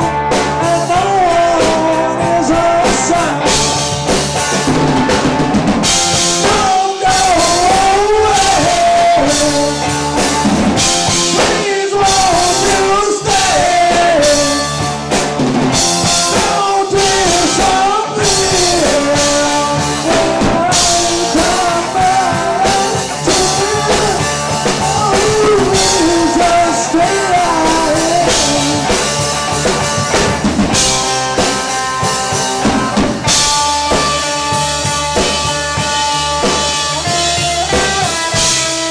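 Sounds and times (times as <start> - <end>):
man singing: 0.0 - 4.0, 6.1 - 15.0, 15.7 - 30.1
rock band playing: 0.0 - 38.9.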